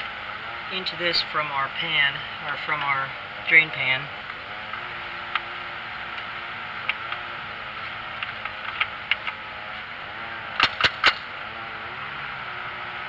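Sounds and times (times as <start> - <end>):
small clicks and knocks: 6.1 - 9.4
sharp loud clicks: 10.6 - 11.3.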